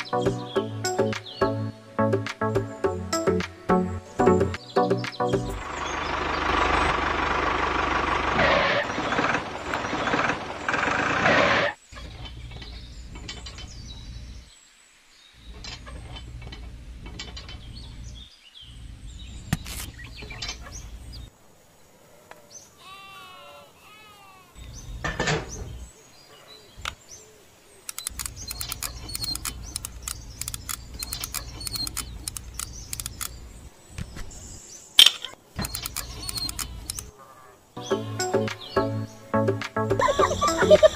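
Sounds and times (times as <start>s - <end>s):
bird-like chirps: 0.0s - 1.7s, 24.6s - 39.4s.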